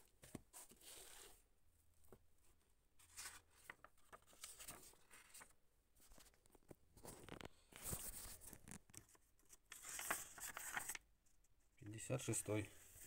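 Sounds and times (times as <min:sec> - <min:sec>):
book pages turning: 0:03.0 - 0:05.5, 0:06.1 - 0:11.0.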